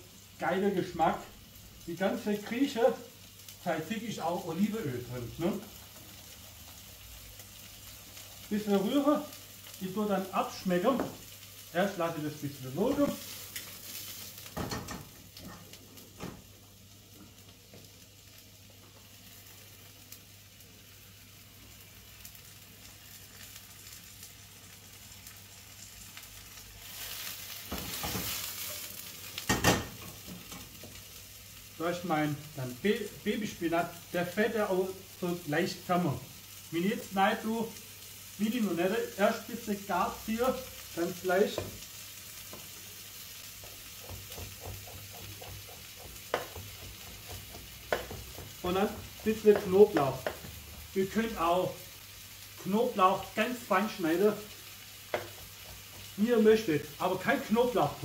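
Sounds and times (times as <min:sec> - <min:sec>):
mushrooms sizzling in oil: 0:00.0 - 0:58.0
knife tapping on cutting board: 0:44.1 - 0:48.6.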